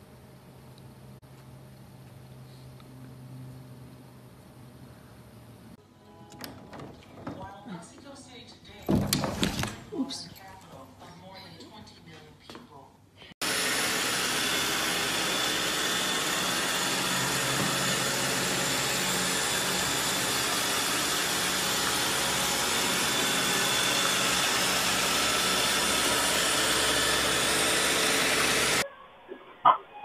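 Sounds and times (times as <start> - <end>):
robot vacuum cleaner whirring: 13.4 - 28.8.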